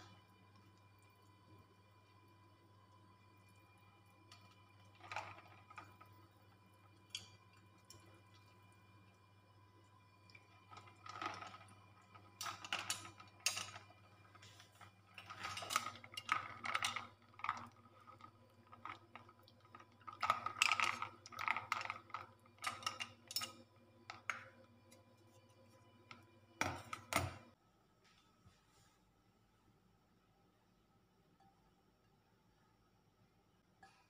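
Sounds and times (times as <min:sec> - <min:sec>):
ice cubes clinking: 0:04.3 - 0:08.5, 0:10.2 - 0:24.5.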